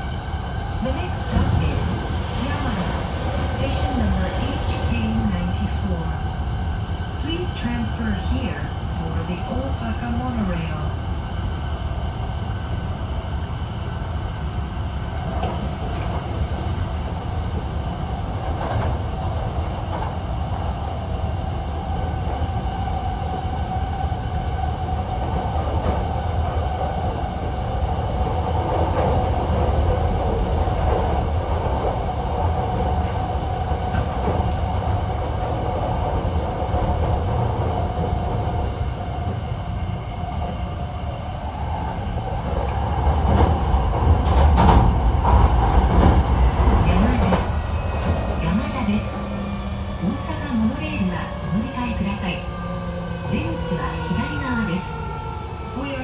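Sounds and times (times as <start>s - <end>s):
rail clicks: 42.4s - 52.2s.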